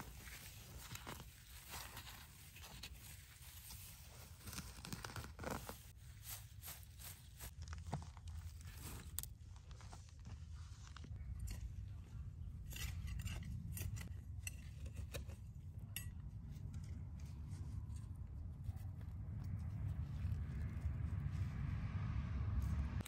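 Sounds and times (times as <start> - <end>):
dry grass snapping and rustling: 0.0 - 12.0
steady low rumble: 5.4 - 23.0.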